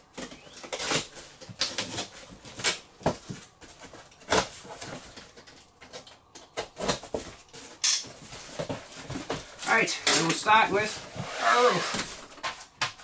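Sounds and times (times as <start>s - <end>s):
cardboard scraping and rustling: 6.6s - 13.0s.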